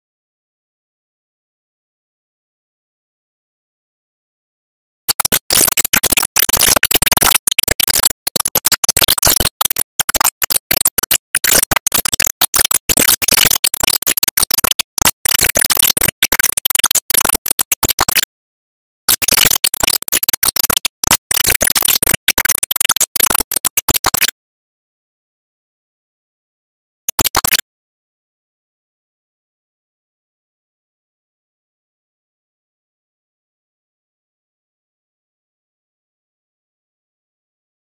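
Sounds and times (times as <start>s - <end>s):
harsh stuttering static noise: 5.1s - 18.3s, 19.1s - 24.3s, 27.1s - 27.6s.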